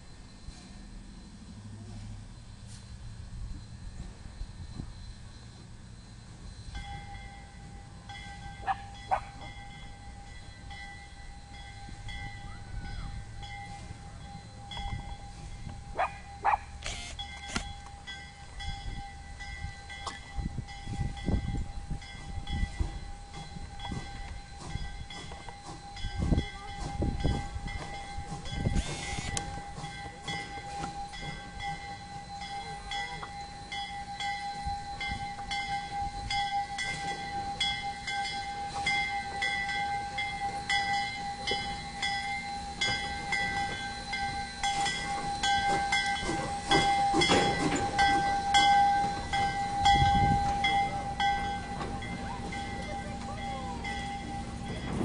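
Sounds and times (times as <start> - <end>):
steam hissing: 21.9 - 33.7, 36.1 - 55.0
sharp clanks: 44.6 - 49.5.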